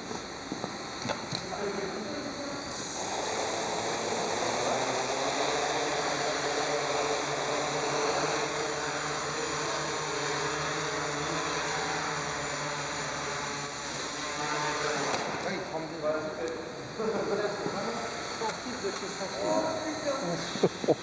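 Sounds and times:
quadcopter propellers whirring: 0.0s - 21.0s.

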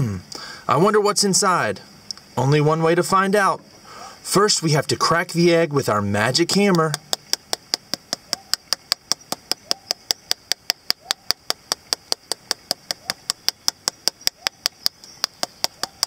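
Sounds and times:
hammer tapping plastic egg: 6.5s - 16.0s.

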